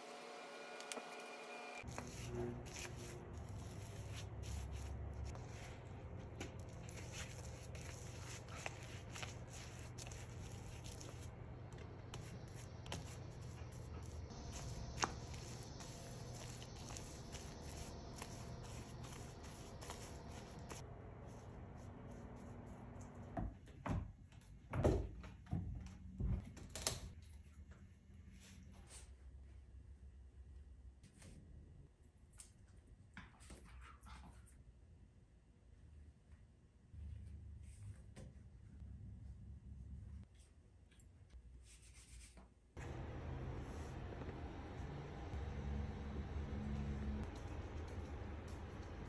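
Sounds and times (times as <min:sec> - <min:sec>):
paintbrush brushing on wood: 0:01.8 - 0:11.4, 0:12.1 - 0:22.7.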